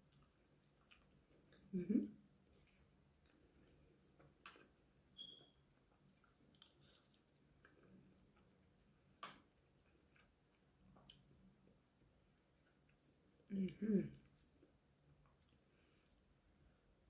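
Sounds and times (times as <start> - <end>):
chewing clicks and smacks: 0.1 - 1.6, 5.9 - 8.5.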